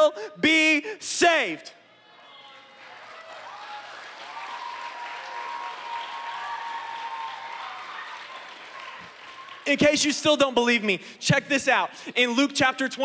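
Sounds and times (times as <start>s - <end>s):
audience applauding: 2.4s - 10.2s.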